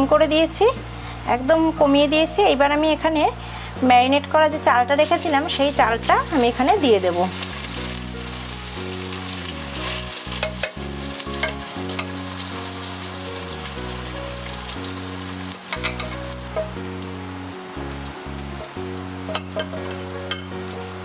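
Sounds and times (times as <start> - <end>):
rice sizzling in oil: 5.0 - 21.0.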